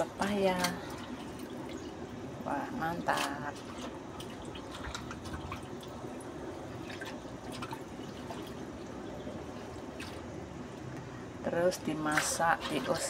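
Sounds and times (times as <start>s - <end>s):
small splashes and drips: 0.0s - 13.0s
hands swishing leaves in water: 2.6s - 6.0s, 11.8s - 13.0s.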